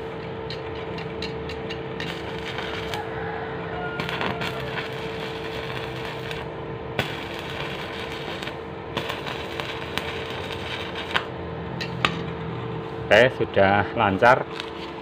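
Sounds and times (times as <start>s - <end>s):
sharp welding pops: 0.0s - 3.1s, 4.0s - 12.2s
welding arc crackling: 0.0s - 3.2s, 3.8s - 12.2s, 14.1s - 15.0s.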